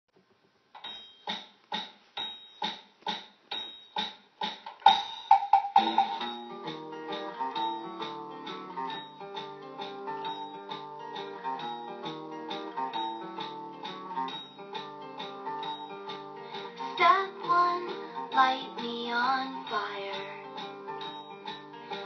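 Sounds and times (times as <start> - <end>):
plucked chords instrumental music: 4.8 - 22.0.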